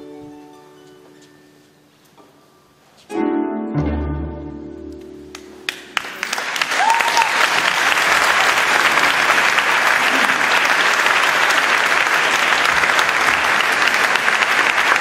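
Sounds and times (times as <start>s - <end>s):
audience applauding: 5.3s - 15.0s.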